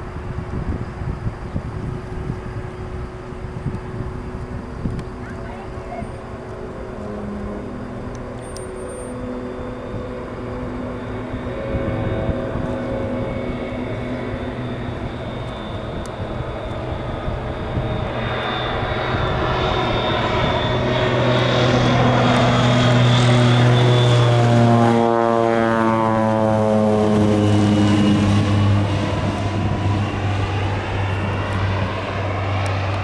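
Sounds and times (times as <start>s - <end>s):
turboprop plane passing overhead: 0.0s - 33.0s.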